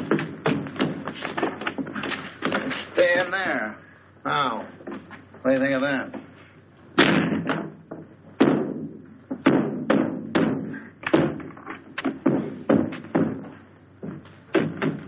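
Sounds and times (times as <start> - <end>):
banging on a wooden door: 7.0 - 15.0.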